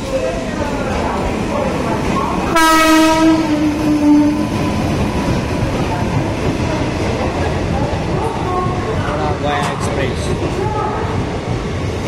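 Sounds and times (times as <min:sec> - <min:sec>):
train rumbling on tracks: 0:00.0 - 0:12.0
train horn blast: 0:02.5 - 0:04.6.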